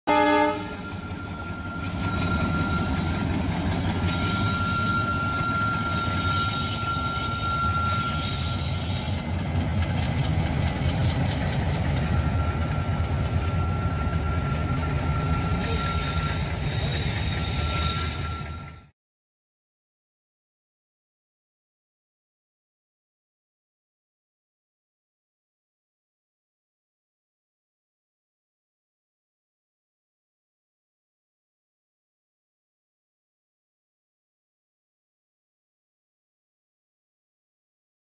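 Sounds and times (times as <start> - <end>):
diesel locomotives rumbling: 0.1 - 18.9
thin high squeal: 0.7 - 9.4, 13.4 - 18.9.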